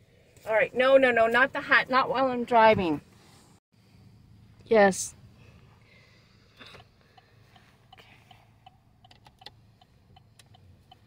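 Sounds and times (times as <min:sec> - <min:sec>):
idling engine hum: 0:03.8 - 0:11.0
turn signal ticking: 0:06.6 - 0:11.0.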